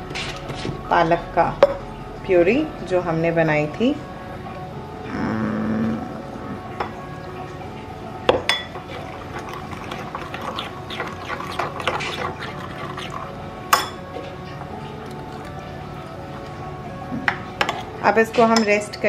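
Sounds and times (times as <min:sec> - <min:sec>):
puree pouring into bowl: 0:08.6 - 0:13.7
ladle stirring and scraping bowl: 0:08.8 - 0:13.4.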